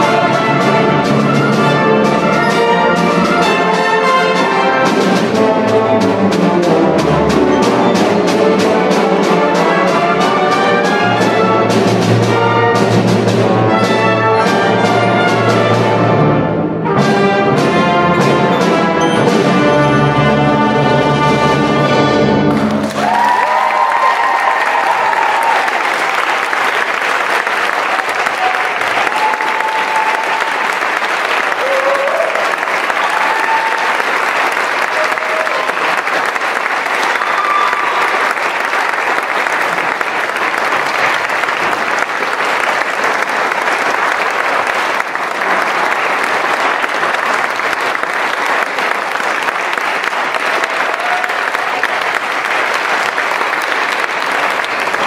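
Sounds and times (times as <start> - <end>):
audience applauding: 22.4 - 55.0.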